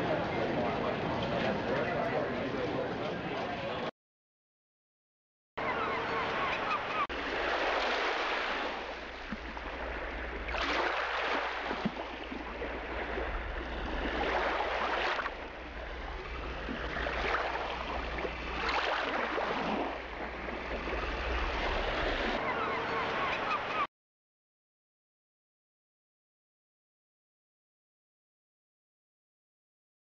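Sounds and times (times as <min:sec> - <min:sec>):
small waves washing: 0:05.6 - 0:23.9
steady low rumble: 0:12.3 - 0:18.6.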